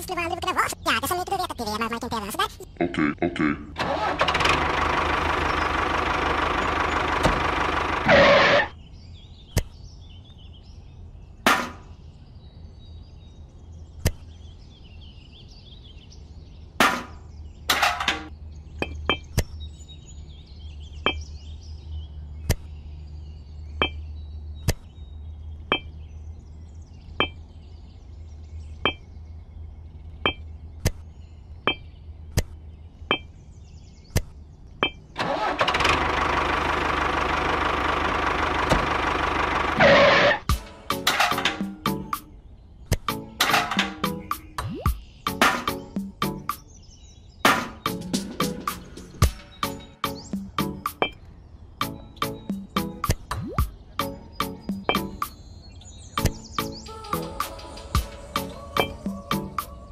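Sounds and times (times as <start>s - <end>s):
toy tractor engine: 3.8s - 8.7s, 35.2s - 40.4s
knocks and scrape of buckets: 16.8s - 18.3s, 39.8s - 41.8s, 43.4s - 44.1s.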